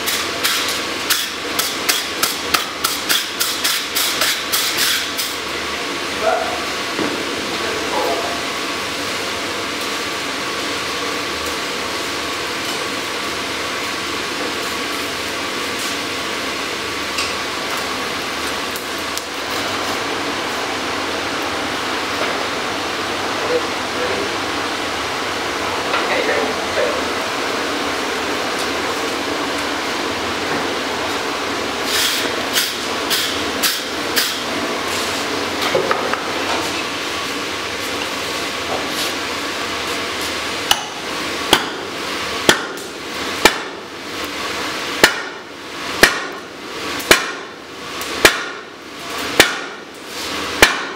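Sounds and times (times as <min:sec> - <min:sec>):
forge blower rushing: 0:00.0 - 0:50.9.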